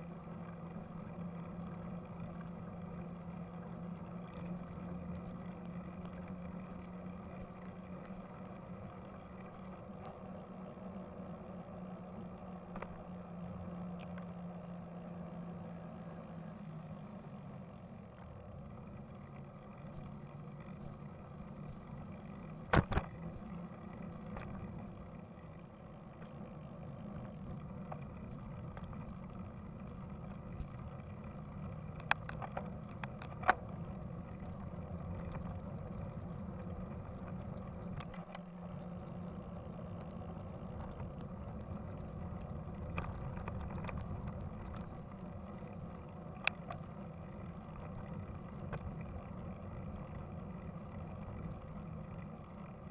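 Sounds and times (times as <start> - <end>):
motorbike rumble: 18.1 - 52.9.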